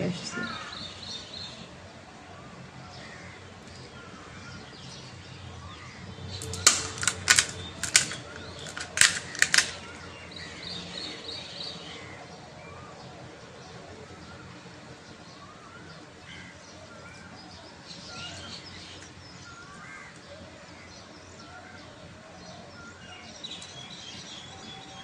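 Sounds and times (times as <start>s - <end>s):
crispy shells cracking: 6.4s - 10.4s.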